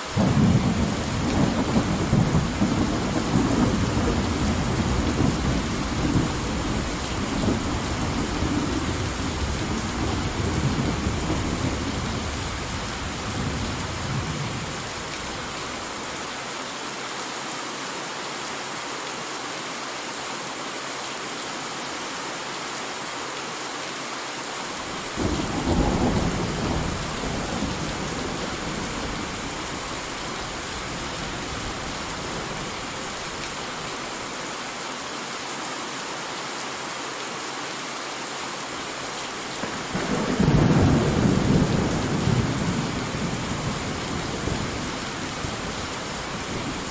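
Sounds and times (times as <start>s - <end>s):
steady rain: 0.0s - 46.9s
thunder rumbling: 0.2s - 15.5s, 24.9s - 33.3s, 39.6s - 46.9s.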